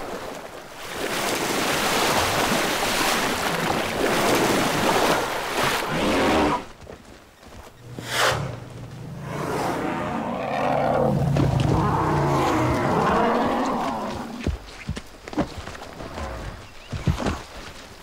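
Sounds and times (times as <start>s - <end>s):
heavy water splashing: 0.0s - 6.7s.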